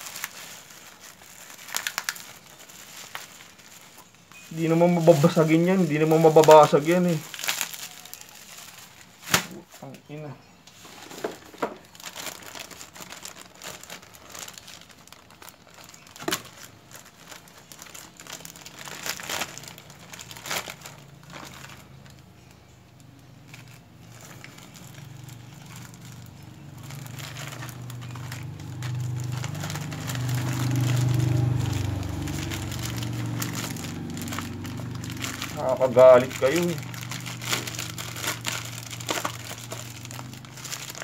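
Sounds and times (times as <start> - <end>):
plastic packaging crinkling: 0.0 - 10.0, 10.7 - 41.0
low rumble: 23.7 - 40.9.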